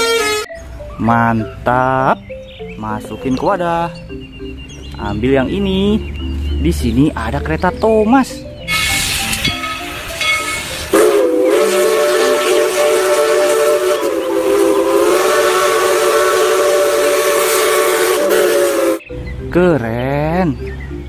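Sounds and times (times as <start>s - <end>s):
steam locomotive whistle: 0.0s - 0.5s, 8.7s - 19.1s
steam hissing: 8.7s - 19.0s.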